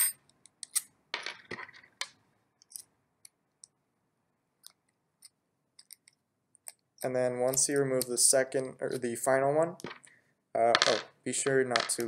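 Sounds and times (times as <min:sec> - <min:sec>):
small screws and wrench clicking: 0:00.0 - 0:00.9, 0:04.6 - 0:06.8.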